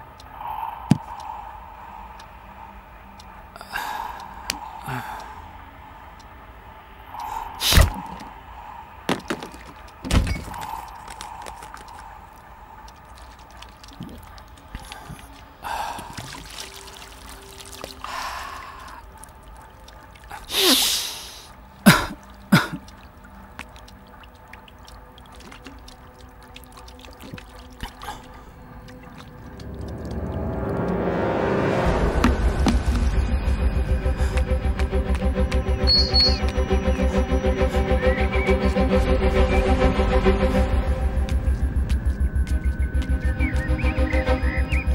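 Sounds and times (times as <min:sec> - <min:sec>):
water pouring and splashing: 0:09.0 - 0:35.3.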